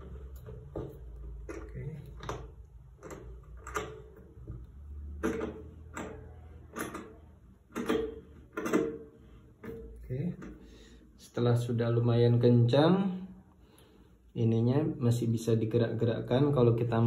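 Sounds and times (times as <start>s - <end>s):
metal clamp knocking and clicking: 0.0s - 10.6s.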